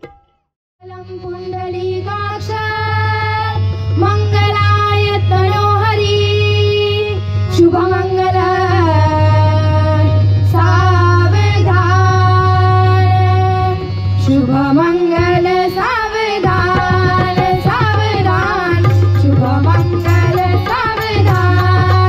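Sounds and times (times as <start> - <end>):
tabla strokes: 0.0 - 0.5, 14.6 - 22.0
boy singing: 0.8 - 22.0.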